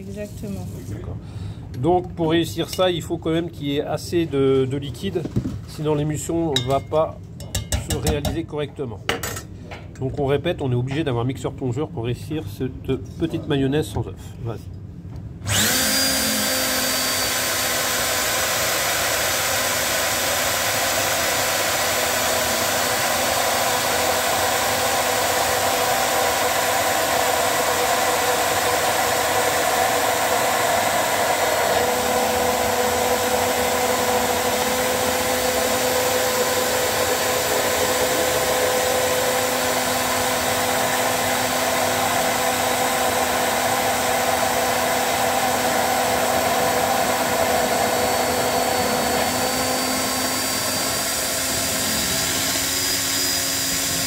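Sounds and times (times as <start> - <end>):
immersion blender whining: 15.4 - 54.0.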